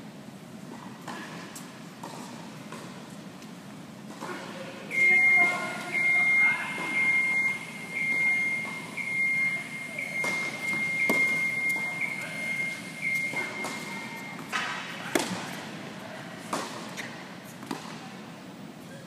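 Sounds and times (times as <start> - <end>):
tennis racket hitting ball: 13.3 - 15.6.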